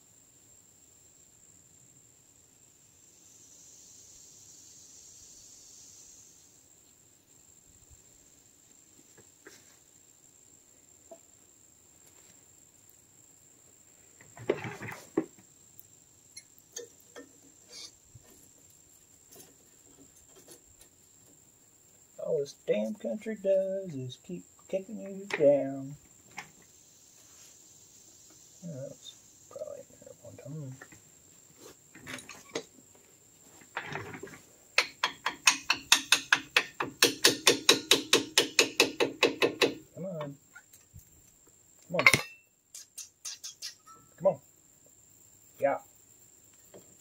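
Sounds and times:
light metallic clanks: 16.7s - 18.4s, 31.9s - 32.7s, 33.6s - 40.9s, 41.9s - 42.5s.

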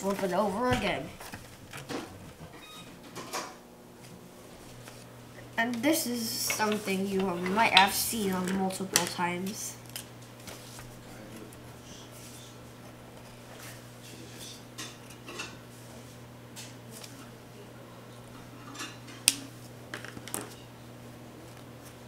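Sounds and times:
paper handling: 4.0s - 5.1s, 6.6s - 11.6s
pencil tapping and scraping paper: 6.4s - 7.9s.

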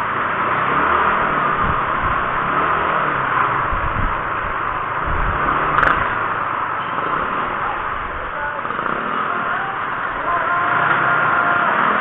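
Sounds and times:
motorcycle engine running: 0.0s - 12.0s
road noise: 0.0s - 12.0s
wind rushing: 1.0s - 6.5s.

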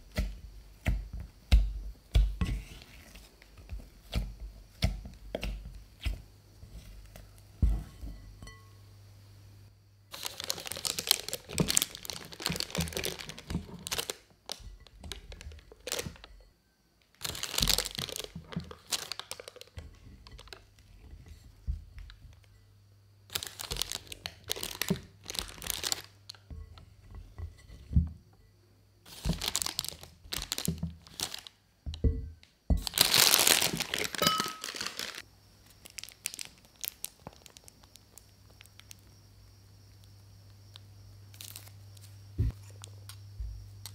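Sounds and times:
spatula scraping dough in bowl: 0.0s - 8.6s
plastic piping bag crinkling: 10.1s - 16.3s, 17.1s - 20.7s, 23.3s - 26.4s, 29.1s - 31.6s, 32.8s - 39.0s, 40.7s - 43.2s.

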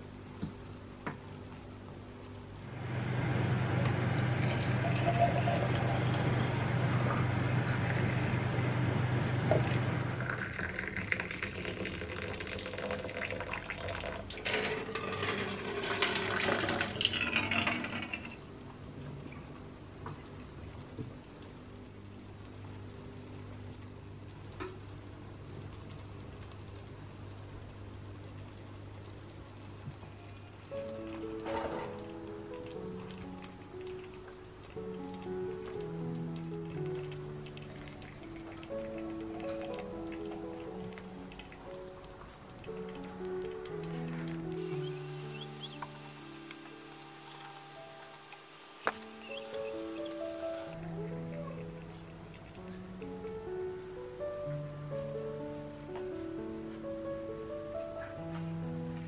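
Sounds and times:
low hum: 2.0s - 10.8s
water pouring into glass jars: 4.2s - 7.0s, 10.1s - 18.4s, 44.6s - 50.8s.

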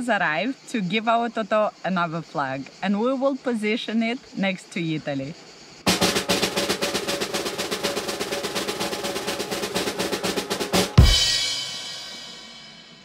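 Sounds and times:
bass drum hit: 5.9s - 12.3s
snare drum roll: 5.9s - 12.5s
cymbal crash: 5.9s - 13.0s.

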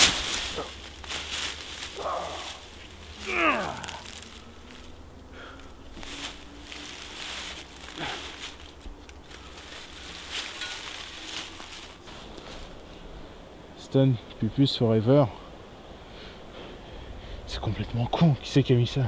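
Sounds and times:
dry leaves rustling and crunching: 0.0s - 13.1s.

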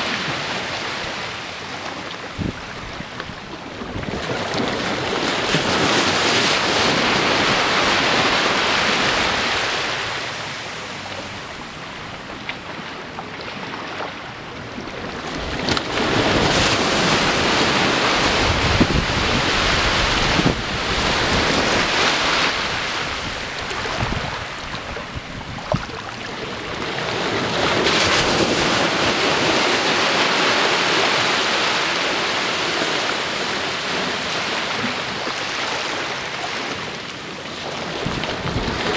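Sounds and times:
small waves breaking on beach: 0.0s - 38.9s.

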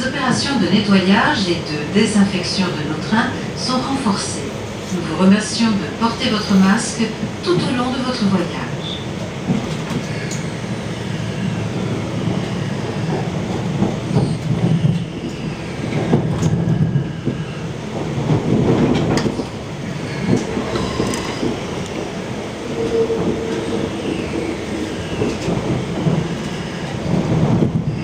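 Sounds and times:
train rolling rumble: 0.0s - 28.0s
sharp track clicks: 20.2s - 22.2s.

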